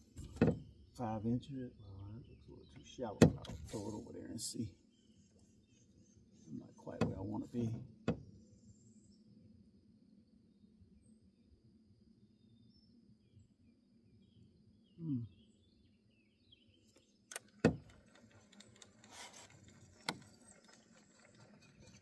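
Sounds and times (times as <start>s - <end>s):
faint bird chirps: 0.9s - 17.3s.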